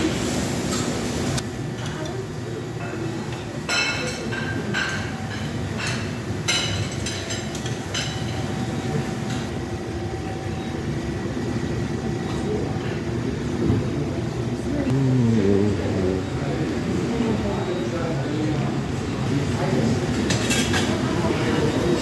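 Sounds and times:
crockery and utensils clinking: 2.8s - 8.6s, 20.1s - 22.0s.

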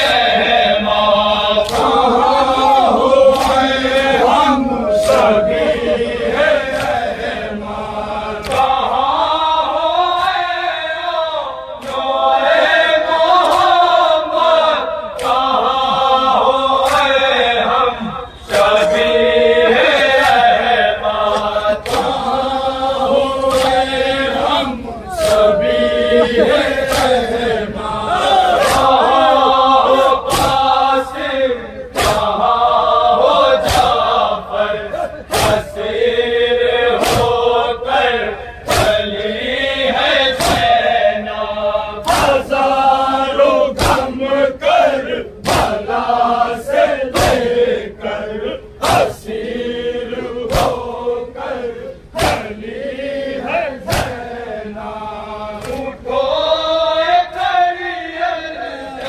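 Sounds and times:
men chanting together: 0.0s - 59.0s
sharp rhythmic beats: 11.7s - 57.7s.

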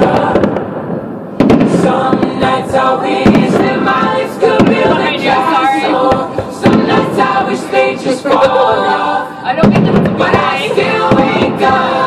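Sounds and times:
choir singing with music: 0.0s - 12.0s
fireworks bangs: 0.0s - 12.0s.

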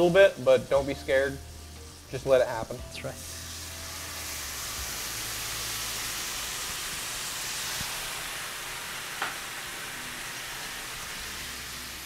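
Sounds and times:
brine sizzling in hot butter: 0.0s - 12.0s
small pop: 9.2s - 9.4s.

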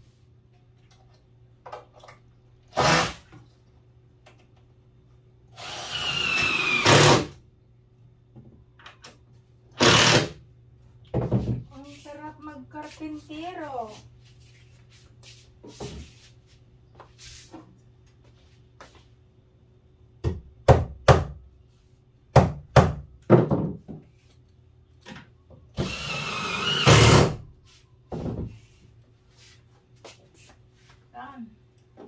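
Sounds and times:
cordless drill driving screw: 5.6s - 7.3s, 9.8s - 10.3s, 25.8s - 27.4s
knocks on wooden countertop: 22.4s - 24.0s.

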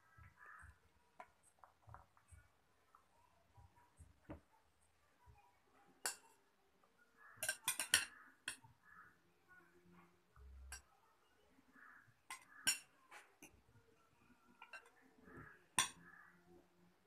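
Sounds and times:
metal spoon clinking against glass: 7.4s - 8.6s.

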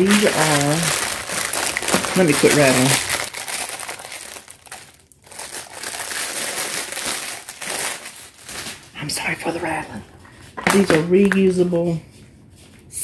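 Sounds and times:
plastic packaging crinkling: 0.0s - 9.5s.

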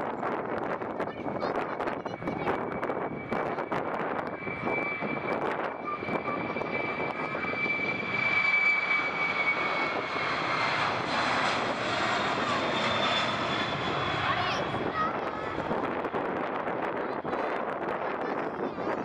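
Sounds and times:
jet engine roar: 0.0s - 19.0s
high-pitched engine whine: 0.2s - 19.0s.

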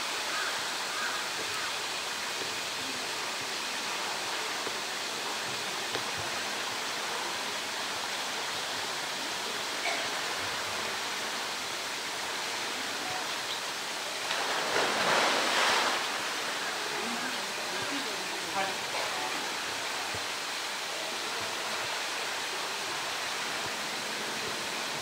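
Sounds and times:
running water rushing: 0.0s - 25.0s
loud splash into water: 14.2s - 16.3s.

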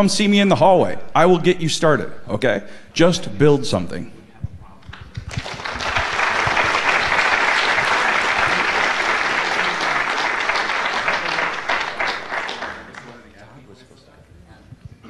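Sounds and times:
audience applauding: 4.9s - 13.5s.

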